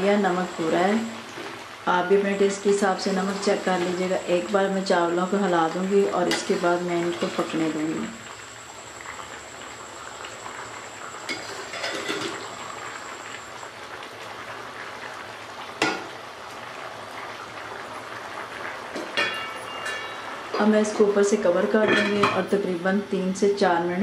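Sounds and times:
pot boiling and bubbling: 0.0s - 24.0s.

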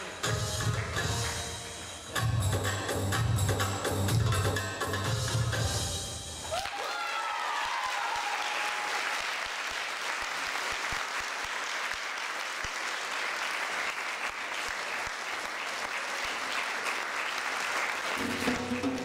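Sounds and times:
dance music: 0.0s - 6.4s
audience applauding: 6.4s - 19.0s.

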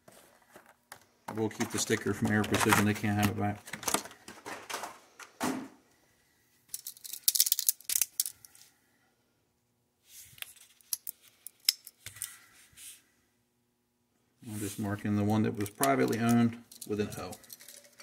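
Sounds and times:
metal parts clicking: 6.7s - 8.6s, 10.8s - 12.4s, 15.6s - 18.0s.

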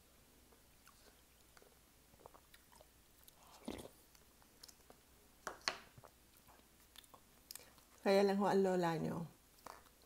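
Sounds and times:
chewing and mouth sounds: 0.5s - 5.0s, 5.9s - 8.0s, 9.5s - 10.0s.

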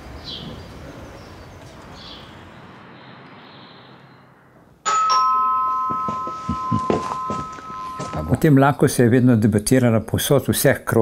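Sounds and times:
street ambience: 0.0s - 10.9s
faint bird chirps: 0.2s - 4.4s
doorbell chime: 4.8s - 8.5s.

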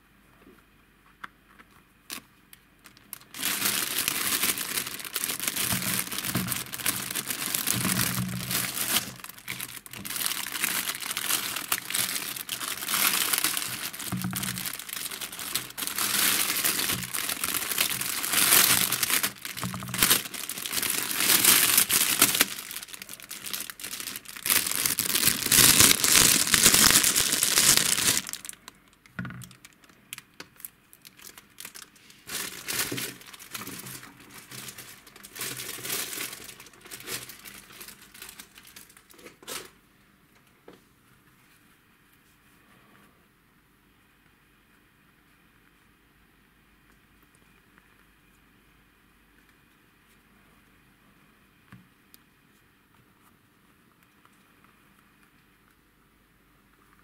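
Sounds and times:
plastic bag crinkling: 2.8s - 39.7s.

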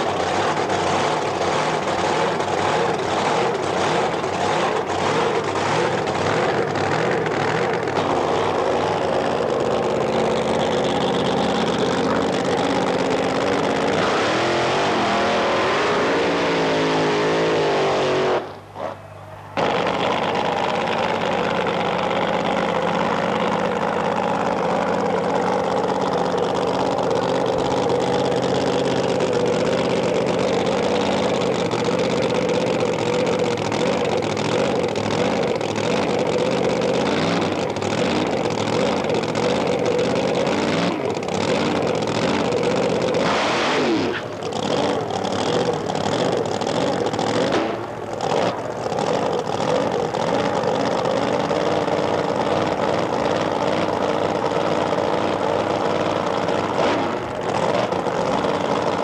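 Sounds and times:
drag racing engine idling: 0.0s - 59.0s.

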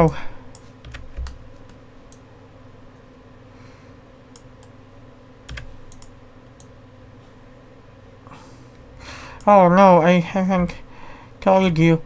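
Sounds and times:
keyboard keys clicking: 0.8s - 1.8s, 5.5s - 6.1s.

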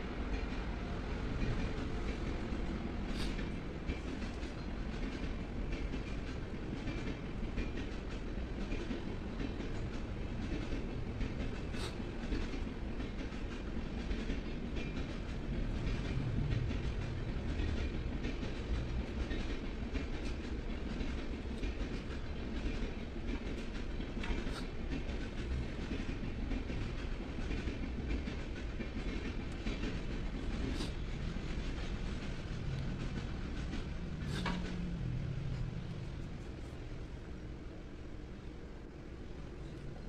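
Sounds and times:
low rumbling background noise: 30.9s - 40.0s.

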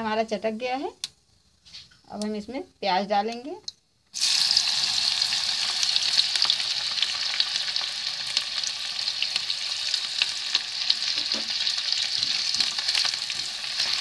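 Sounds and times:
onions sizzling in hot oil: 4.2s - 14.0s.

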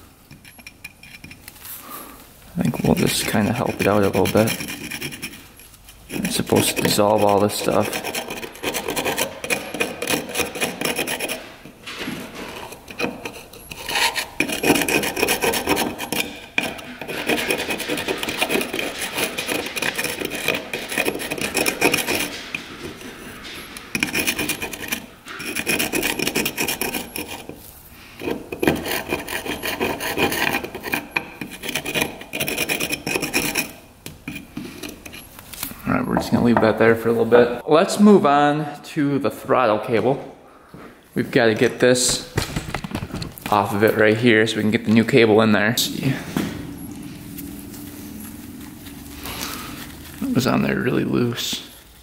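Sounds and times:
brush scrubbing rusty metal: 2.5s - 35.5s, 43.5s - 52.0s.

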